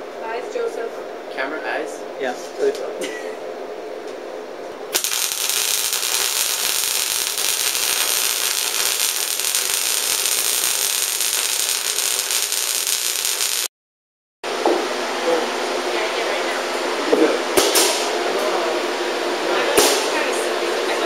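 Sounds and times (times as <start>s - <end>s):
electric arc welding crackle: 4.9s - 13.7s.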